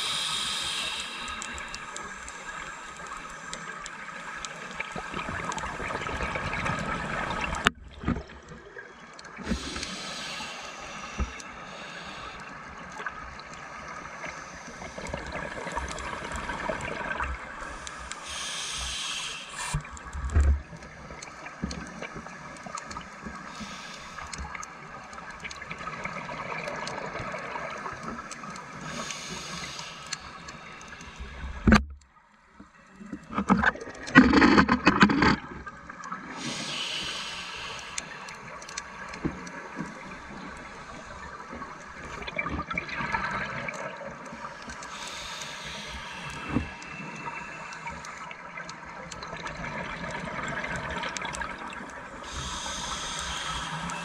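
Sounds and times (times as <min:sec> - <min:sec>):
regulator breathing hiss: 0:00.0 - 0:04.6, 0:09.5 - 0:13.0, 0:17.6 - 0:19.9, 0:23.4 - 0:25.6, 0:27.9 - 0:31.7, 0:36.3 - 0:42.2, 0:44.3 - 0:48.5, 0:52.0 - 0:54.0
steady underwater drone: 0:00.0 - 0:54.0.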